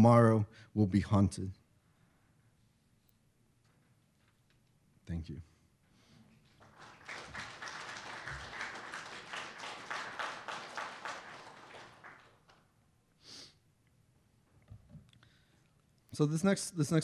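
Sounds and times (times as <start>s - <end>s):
audience applauding: 6.5s - 12.7s.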